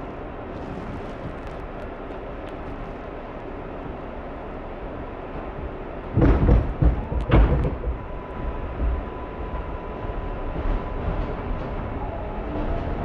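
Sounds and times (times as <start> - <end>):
subway train standing noise: 0.0 - 13.0
heavy thumps and knocks: 6.2 - 8.0.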